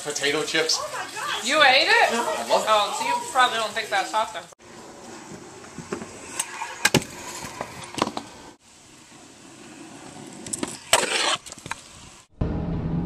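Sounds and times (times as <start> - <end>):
small wheels rolling on pavement: 0.0 - 12.3.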